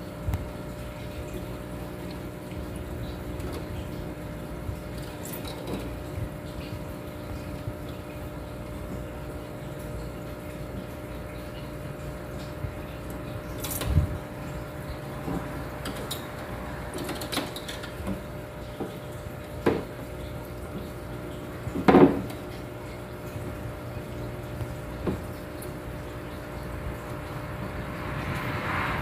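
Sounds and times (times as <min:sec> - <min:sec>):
aquarium pump humming: 0:00.0 - 0:29.0
knocks and clunks in tank: 0:13.5 - 0:25.8.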